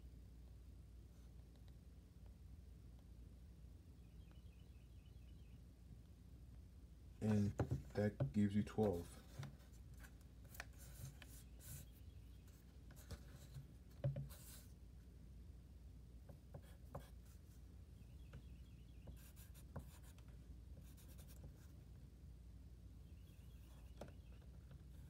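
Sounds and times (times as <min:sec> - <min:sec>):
pencil scratching on paper: 0:13.0 - 0:14.7, 0:19.0 - 0:20.2, 0:20.8 - 0:21.7.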